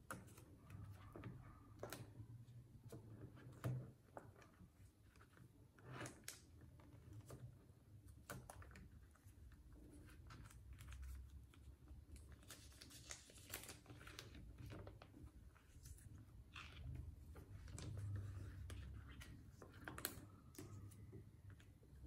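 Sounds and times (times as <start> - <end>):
plastic sleeve pages crinkling: 10.0 - 21.7.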